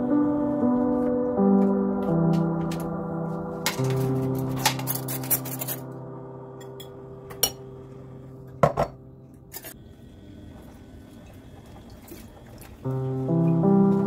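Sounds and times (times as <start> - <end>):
spoons clinking on bowls: 3.7 - 5.9.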